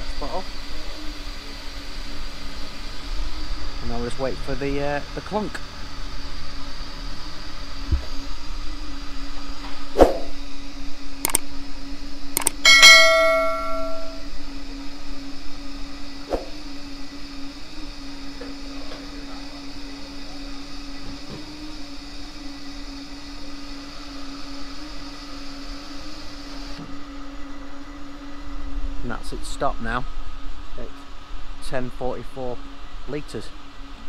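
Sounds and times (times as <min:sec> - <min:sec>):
pump hum with high whine: 0:00.0 - 0:34.0
sharp clicks: 0:11.2 - 0:11.4, 0:12.4 - 0:12.6
metallic ring: 0:12.6 - 0:14.3.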